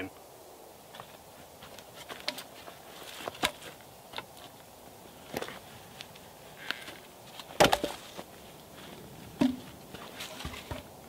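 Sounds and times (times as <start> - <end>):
log knocking and crackling: 0.9 - 11.0
footsteps on woodland floor: 5.2 - 10.9.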